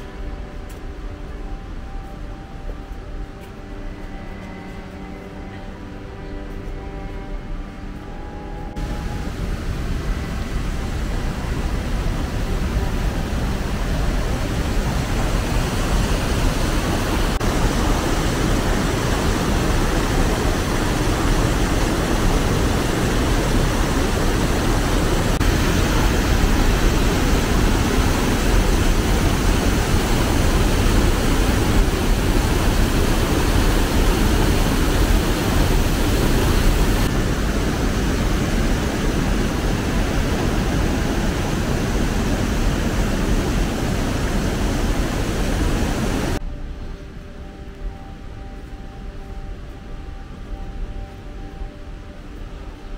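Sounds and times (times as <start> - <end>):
stream rushing over waterfall: 8.8 - 46.4.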